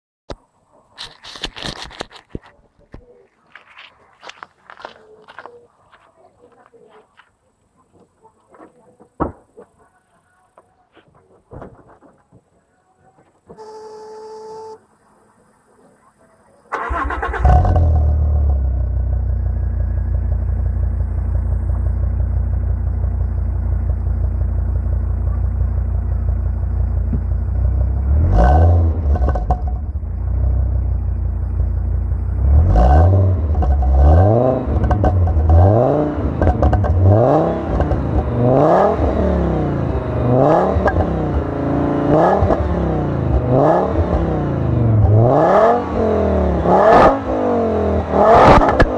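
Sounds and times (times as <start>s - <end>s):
short beep: 13.6s - 14.9s
car engine idling and revving: 16.8s - 48.9s.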